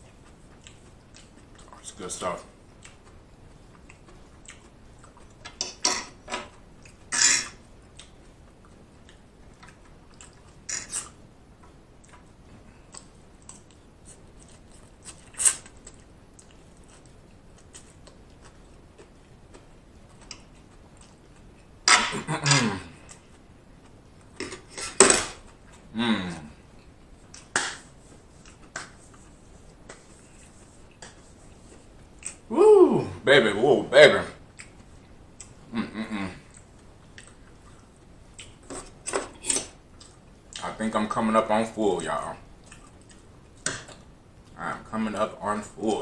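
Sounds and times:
chewing and mouth sounds: 0.0 - 2.0, 2.6 - 5.6, 7.8 - 21.7, 26.8 - 32.5, 34.4 - 35.7, 36.4 - 39.0, 42.6 - 44.6.

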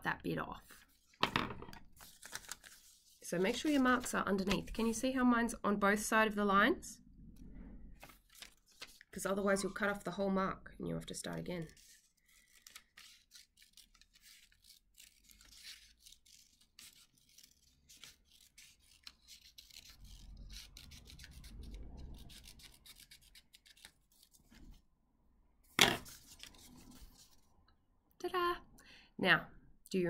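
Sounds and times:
scissors snipping paper: 11.6 - 24.3
paper rubbing: 11.6 - 24.7, 26.0 - 27.4.

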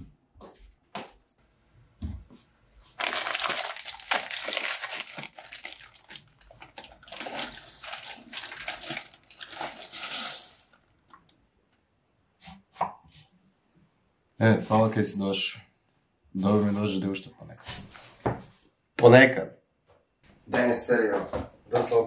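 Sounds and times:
food crackling and hissing in pot: 9.8 - 10.8.

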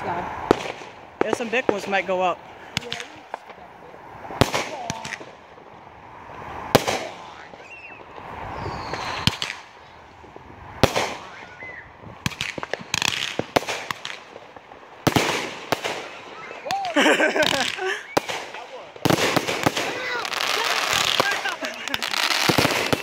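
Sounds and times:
hissing firework launch: 0.0 - 23.0
fireworks shells bursting: 6.6 - 11.6, 12.2 - 23.0.

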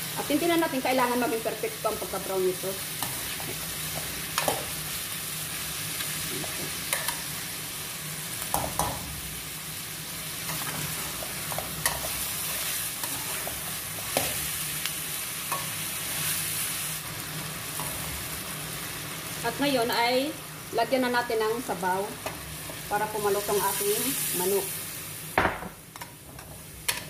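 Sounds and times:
chicken sizzling in oil: 0.0 - 27.0.

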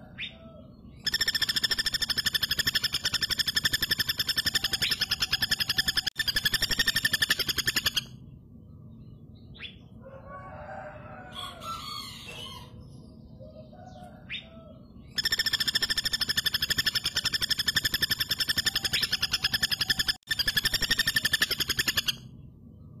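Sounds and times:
faint bird calls: 0.0 - 23.0
woodpecker rattling call: 1.0 - 8.2, 15.0 - 22.3.

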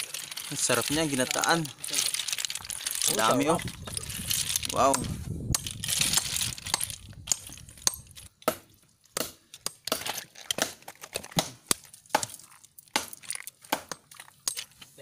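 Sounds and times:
shells clicking when raked: 0.0 - 8.3
hammer striking shells on rock: 4.8 - 8.6.

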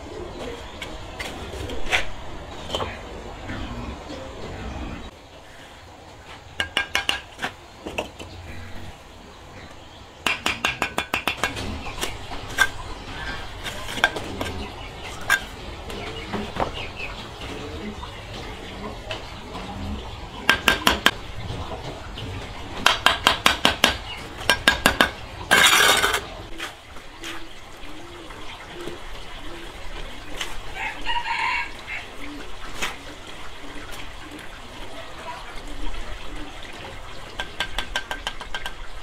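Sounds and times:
kitchenware clattering: 22.8 - 26.4.

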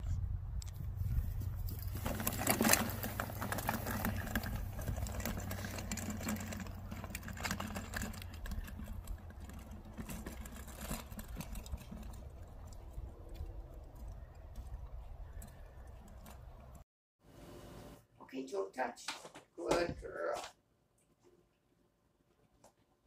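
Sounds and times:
wagon wheels rattling over grass: 1.0 - 16.8.

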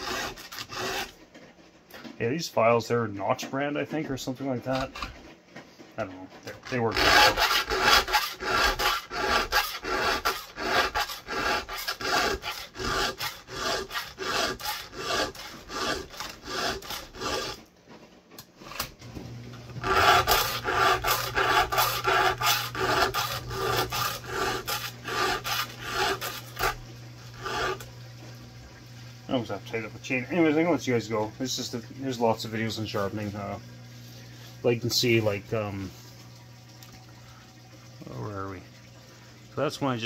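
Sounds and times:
file rasping on saw chain: 0.0 - 1.2, 6.5 - 17.7, 19.8 - 27.9.

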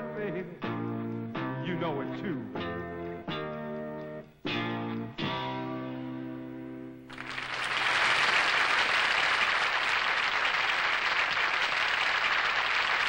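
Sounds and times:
audience applause: 7.1 - 13.0.

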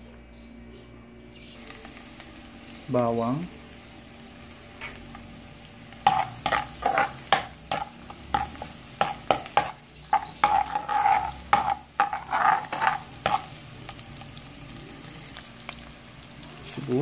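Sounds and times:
low sizzle of frying: 0.0 - 17.0
spatula scraping a wok: 6.0 - 14.0.

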